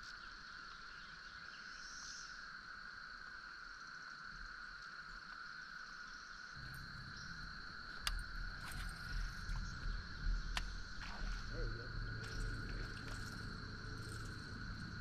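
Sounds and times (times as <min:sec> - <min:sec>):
insects trilling: 0:00.0 - 0:15.0
low rumble: 0:06.6 - 0:15.0.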